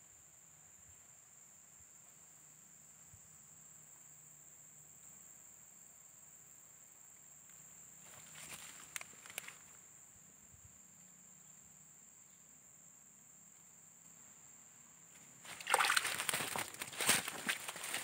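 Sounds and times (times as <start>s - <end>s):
insects chirring: 0.0s - 18.0s
loud crackling rustle: 15.6s - 18.0s.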